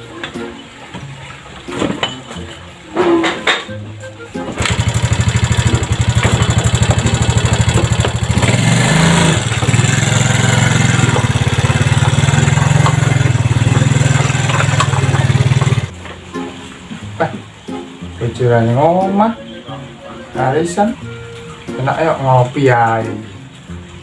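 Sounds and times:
motor scooter engine putter: 0:04.4 - 0:15.9.

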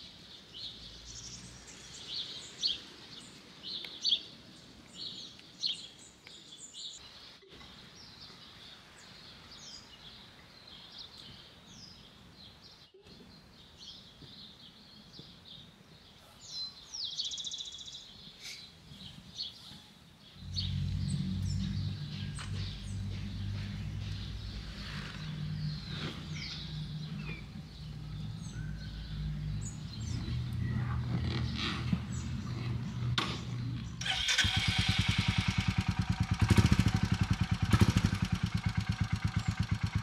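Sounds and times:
songbirds chirping and trilling: 0:00.0 - 0:40.0
low steady rumble: 0:20.4 - 0:34.0.

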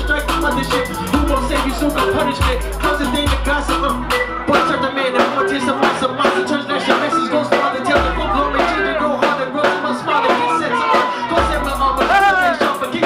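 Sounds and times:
hip-hop drum beat with deep bass: 0:00.0 - 0:13.0
performer rapping into microphone: 0:00.0 - 0:13.0.

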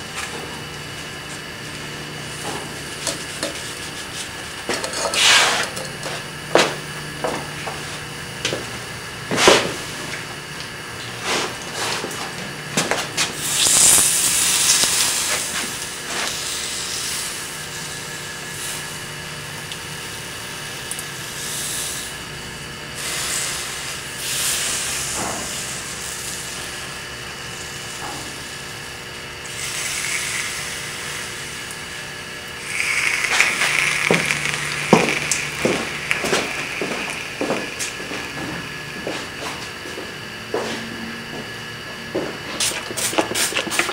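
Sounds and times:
hissing of hot metal: 0:02.3 - 0:05.9, 0:13.3 - 0:19.0, 0:23.0 - 0:38.8.

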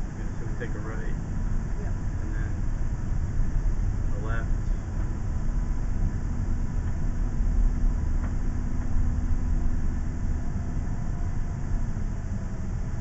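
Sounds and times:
faint steady hum: 0:00.0 - 0:13.0
motorhome engine and road rumble: 0:00.0 - 0:13.0.

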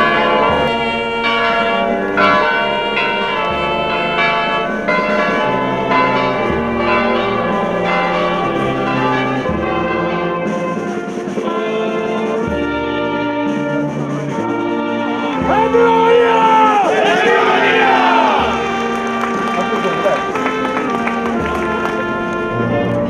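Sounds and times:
band music low notes: 0:00.0 - 0:23.0
church bells ringing: 0:00.0 - 0:23.0.

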